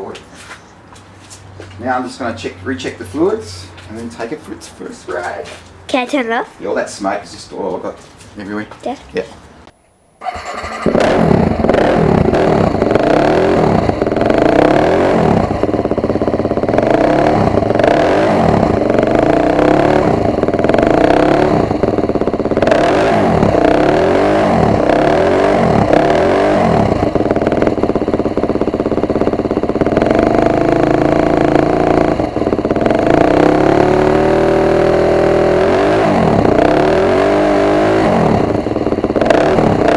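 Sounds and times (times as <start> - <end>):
dirt bike engine revving: 10.2 - 39.9.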